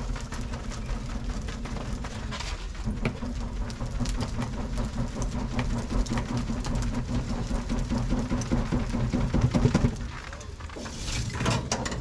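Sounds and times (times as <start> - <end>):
charcoal being stirred and poked: 0.0 - 12.0
steady machine hum: 0.0 - 12.0
clicks and crackles: 9.3 - 12.0.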